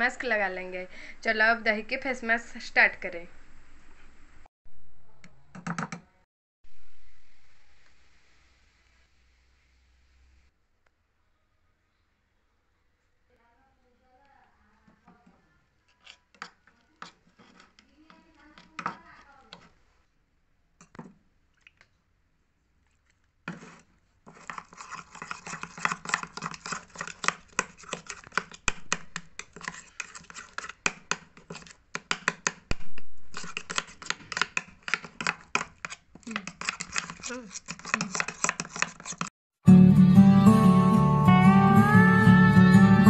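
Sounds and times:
spoon scraping ceramic bowl: 15.2 - 19.8, 23.5 - 39.3.

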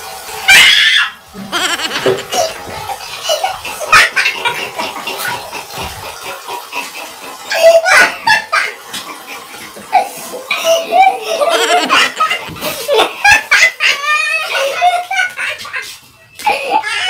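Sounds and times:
hearty laughter: 1.5 - 2.6, 10.8 - 16.9.

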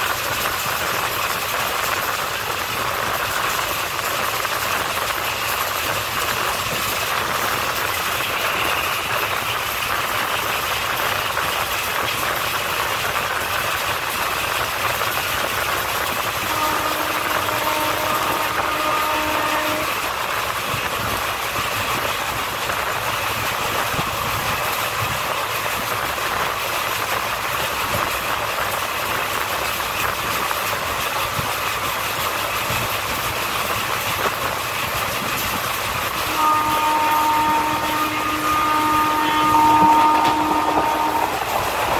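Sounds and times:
train wheels on rails: 0.0 - 41.9.

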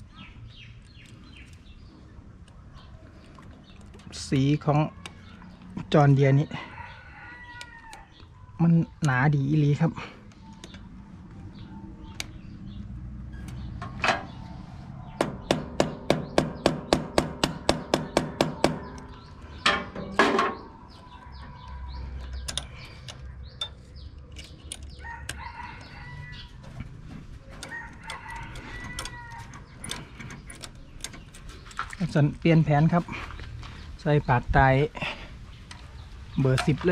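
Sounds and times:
rooster crowing: 6.5 - 8.1, 24.9 - 26.8, 27.6 - 29.6
metal tool clicks: 22.3 - 25.5, 27.6 - 31.3.

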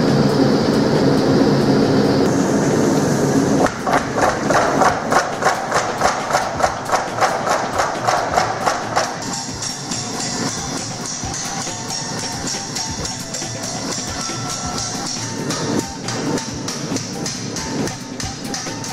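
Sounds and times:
forge burner rushing: 0.0 - 18.9
power hammer striking hot metal: 2.3 - 18.9.

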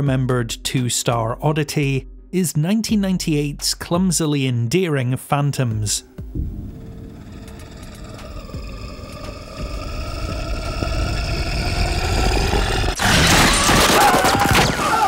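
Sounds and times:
horror drone rising in pitch: 6.0 - 13.9.

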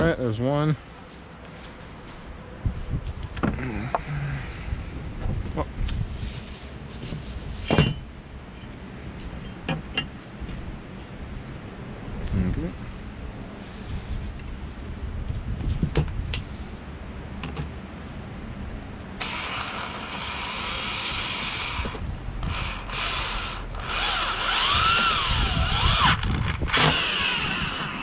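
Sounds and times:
electric drill whirring: 19.2 - 28.0.

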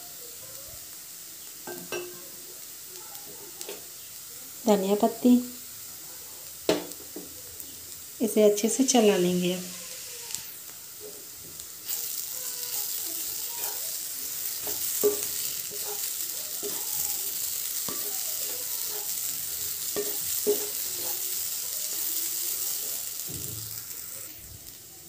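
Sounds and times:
filling sizzling in a pan: 0.0 - 25.0
wooden spatula knocking on pan: 6.7 - 7.3, 14.6 - 15.9, 19.9 - 21.2.

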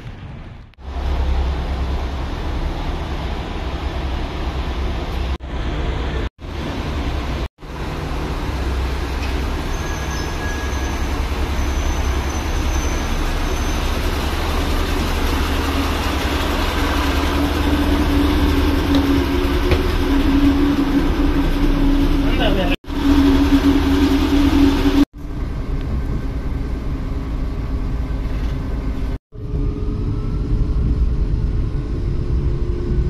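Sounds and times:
train engines idling: 0.2 - 29.2
higher hum: 13.2 - 28.0.

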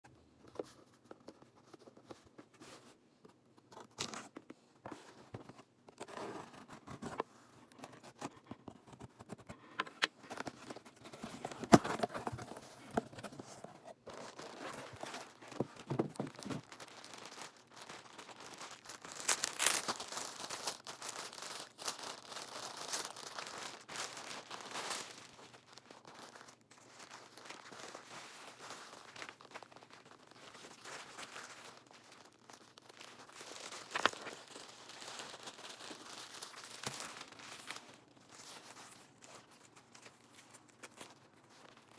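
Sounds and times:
cardboard flaps rustling and scraping: 10.2 - 16.7
plastic wrapping crinkling: 10.2 - 41.9
packing tape tearing: 32.5 - 37.9.

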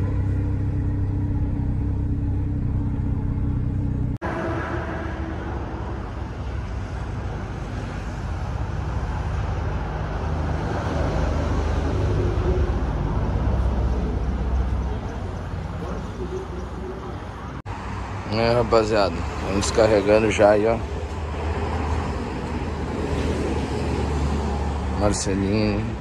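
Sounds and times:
car engine idling: 0.0 - 7.5
low rumble: 0.0 - 8.5.

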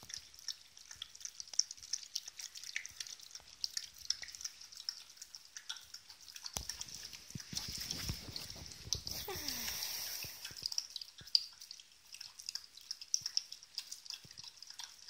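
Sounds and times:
dog eating wet food: 0.0 - 9.7, 10.4 - 15.0
puppies suckling: 0.1 - 10.8.

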